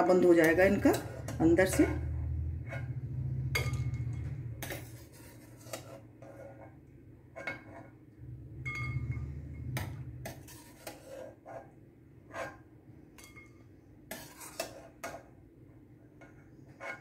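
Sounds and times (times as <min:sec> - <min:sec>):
low hum: 0:00.6 - 0:04.9, 0:08.1 - 0:10.4
spoon clinking against pan and bowl: 0:03.6 - 0:04.9, 0:08.6 - 0:09.3, 0:13.2 - 0:13.6.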